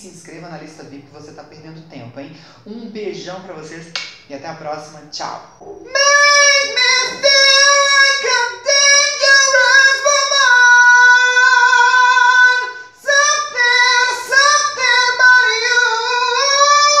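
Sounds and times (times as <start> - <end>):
man singing unaccompanied: 5.6 - 17.0.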